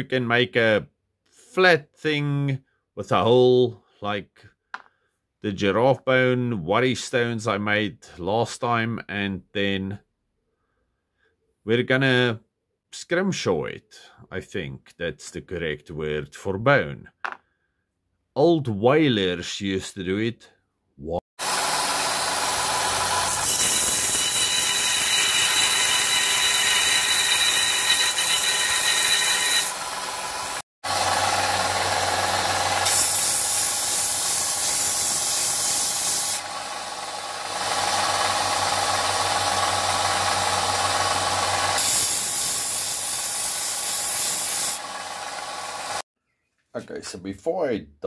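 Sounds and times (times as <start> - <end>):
belt sander motor hum: 21.4 - 46.0
bone grinding on sander: 21.4 - 46.0.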